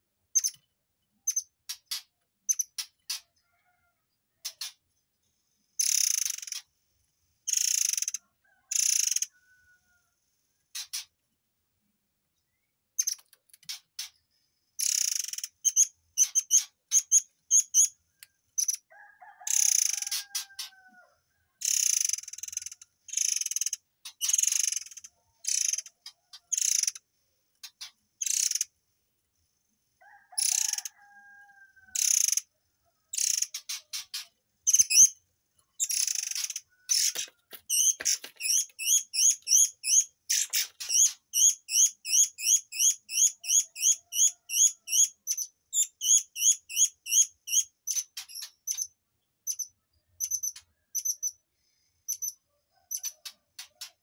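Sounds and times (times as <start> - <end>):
rapid sharp bird chirps: 5.8 - 6.7, 7.5 - 9.3, 14.8 - 18.9, 21.6 - 28.8, 32.0 - 32.5, 33.1 - 54.0.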